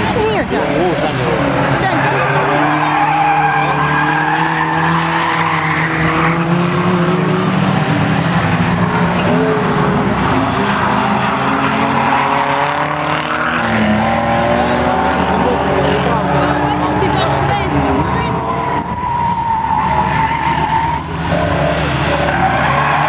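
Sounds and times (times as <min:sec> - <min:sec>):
race car engines revving: 0:00.0 - 0:23.0
tyres squealing: 0:01.4 - 0:07.2, 0:15.3 - 0:23.0.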